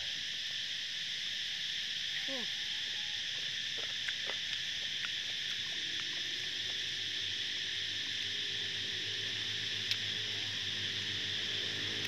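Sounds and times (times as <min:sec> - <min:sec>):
high-pitched insect chorus: 0:00.0 - 0:12.0.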